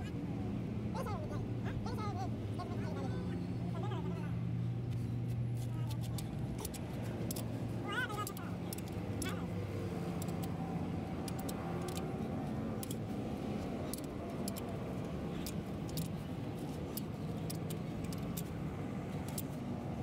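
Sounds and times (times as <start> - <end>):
socket wrench metallic clicks: 5.9 - 7.5, 8.2 - 9.4, 10.1 - 10.6, 11.2 - 12.1, 12.8 - 13.1, 13.8 - 14.7, 15.4 - 18.5, 19.2 - 19.6.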